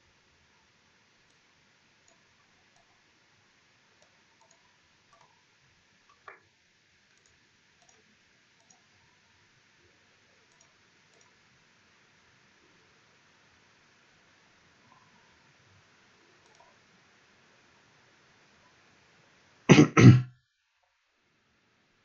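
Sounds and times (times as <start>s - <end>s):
computer mouse clicks: 1.1s - 3.0s, 4.0s - 5.4s, 6.1s - 9.2s, 10.4s - 11.4s, 16.4s - 16.9s.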